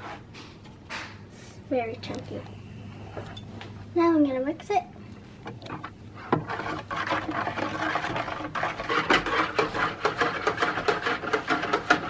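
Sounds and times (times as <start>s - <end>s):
whisk beating water in bowl: 5.6s - 12.0s.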